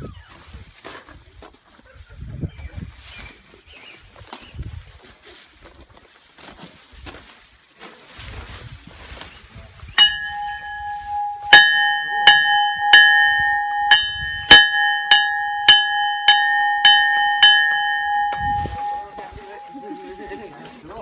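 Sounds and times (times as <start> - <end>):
locomotive bell ringing: 10.0 - 20.7.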